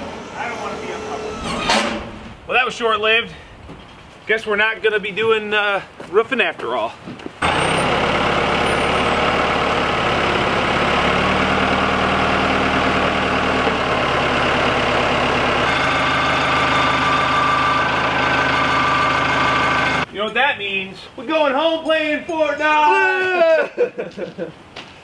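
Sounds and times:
high steady whine: 0.0s - 3.2s, 15.6s - 20.0s
diesel engine running: 0.0s - 4.2s, 7.4s - 20.1s.

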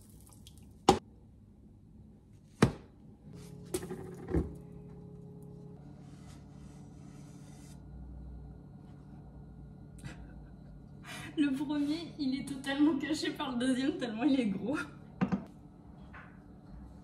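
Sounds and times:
faint steady hum: 4.2s - 17.0s.

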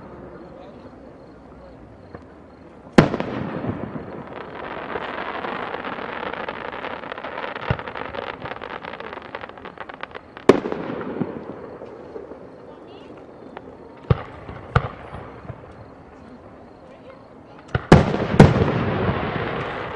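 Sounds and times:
fireworks crackling and popping: 0.0s - 19.9s
firework bang: 2.9s - 15.8s, 17.7s - 19.9s.

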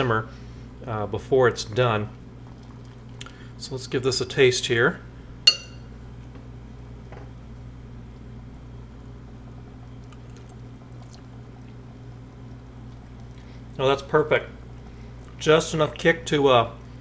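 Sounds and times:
steady low hum: 0.0s - 17.0s
sauce bubbling: 2.2s - 3.6s, 9.5s - 13.8s.

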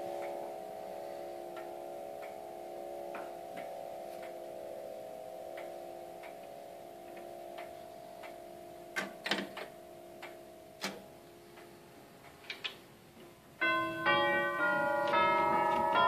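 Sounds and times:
clock chime tune: 0.0s - 9.0s, 13.6s - 16.0s
faint ringing of chime tubes: 0.0s - 9.0s
clock movement clicking: 5.6s - 11.0s.

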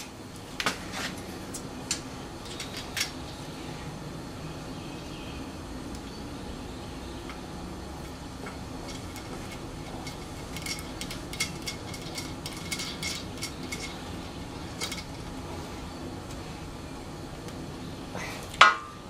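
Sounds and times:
steady low hum: 0.0s - 19.0s
light metallic clicks and scrapes: 0.6s - 3.2s, 8.0s - 15.4s.

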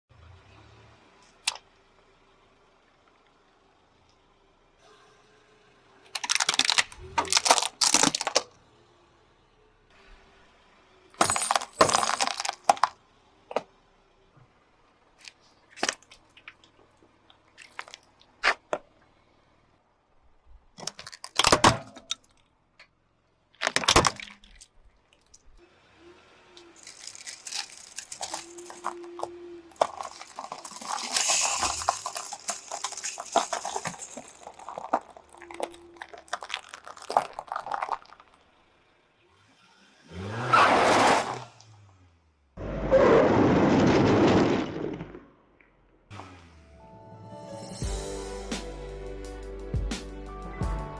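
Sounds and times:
tyre crushing small objects: 6.1s - 8.5s, 11.2s - 13.7s, 15.2s - 18.8s, 20.8s - 22.5s, 23.5s - 25.4s, 26.7s - 38.5s, 43.0s - 45.3s
water beads squashing: 6.1s - 8.5s, 11.2s - 13.0s, 15.2s - 18.5s, 20.8s - 22.4s, 26.7s - 38.5s.

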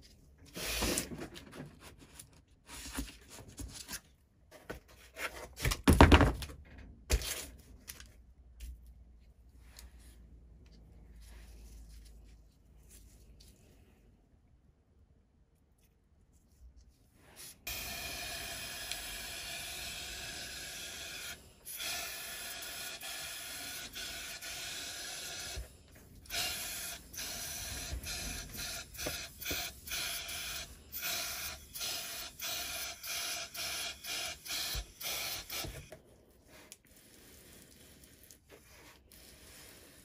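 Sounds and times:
air hissing from spray gun: 17.4s - 35.9s.

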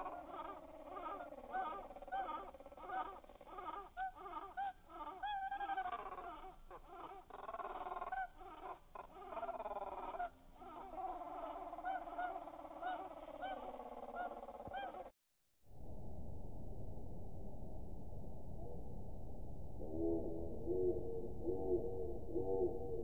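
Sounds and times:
slowed-down bird calls: 0.0s - 15.1s.

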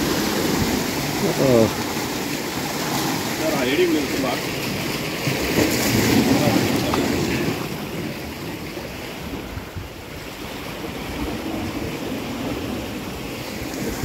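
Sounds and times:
waves washing against rocks: 0.0s - 14.0s
wind rumbling on microphone: 5.4s - 14.0s.

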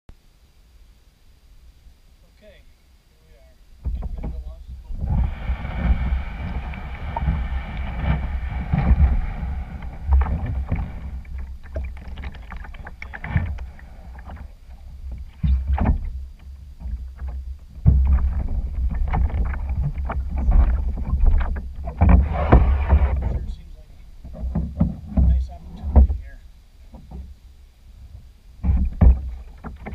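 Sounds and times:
knocks against canoe hull: 3.8s - 23.5s, 24.2s - 26.3s, 28.6s - 29.9s
wind buffeting microphone: 3.8s - 26.4s
water slapping: 4.8s - 26.2s.

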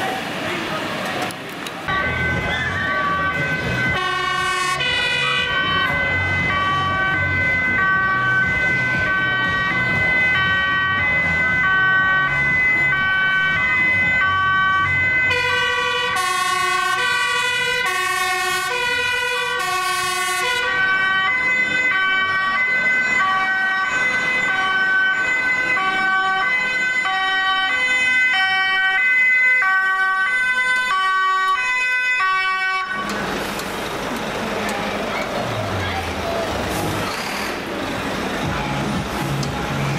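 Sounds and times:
fire engine rumbling: 0.0s - 39.9s
lower-pitched two-tone siren: 1.9s - 33.2s
two-tone sirens: 1.9s - 39.9s.

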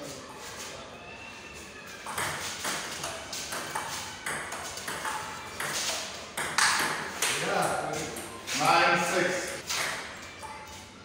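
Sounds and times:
table tennis ball hits: 2.0s - 8.3s, 9.6s - 10.6s.

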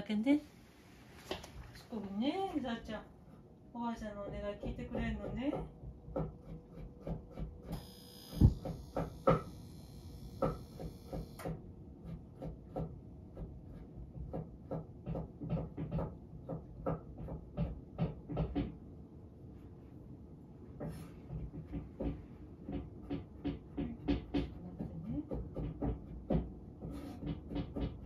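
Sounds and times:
knife chopping on cutting board: 4.6s - 7.7s, 10.4s - 18.7s, 21.7s - 28.0s.

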